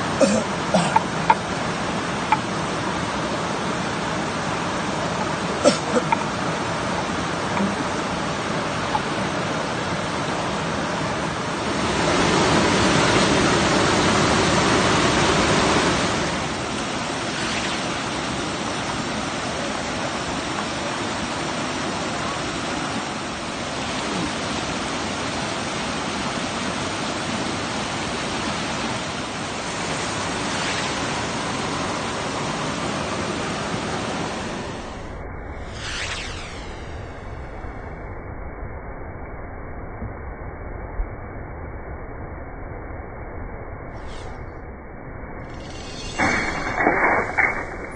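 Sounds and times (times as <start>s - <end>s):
stream and small waterfall rushing: 0.0s - 34.8s.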